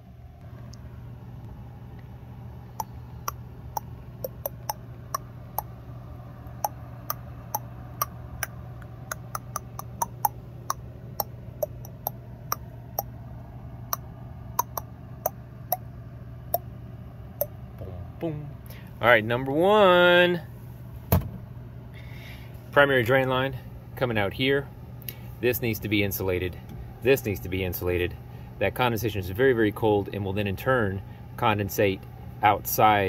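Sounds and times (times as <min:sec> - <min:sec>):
steady low hum: 0:00.0 - 0:33.0
clock-like ticking: 0:03.8 - 0:04.8, 0:09.1 - 0:13.1, 0:14.6 - 0:14.8.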